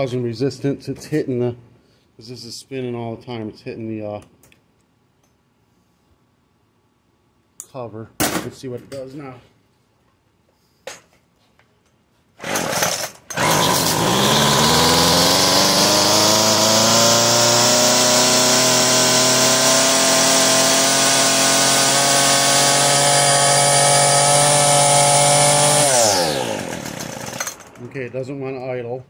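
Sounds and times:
trimmer engine pull-started and revving: 12.4 - 28.0.

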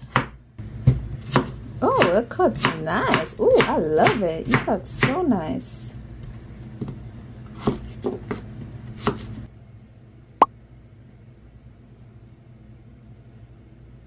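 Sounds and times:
knife chopping on cutting board: 0.0 - 5.2, 7.5 - 9.3.

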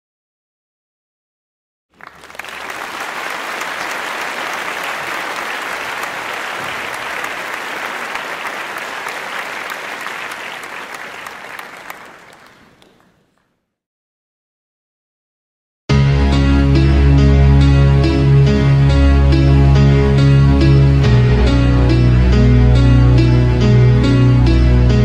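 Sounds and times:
audience applauding: 2.0 - 13.5.

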